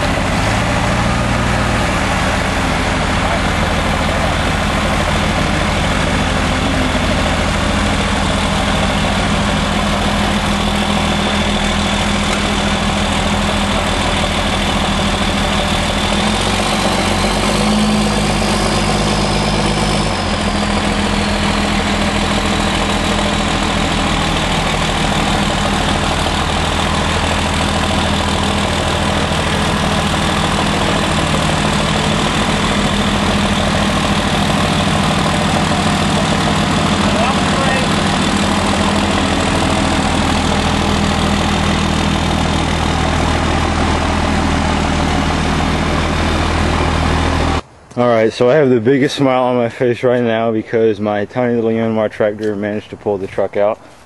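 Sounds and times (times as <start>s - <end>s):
diesel engines under load: 0.0s - 54.0s.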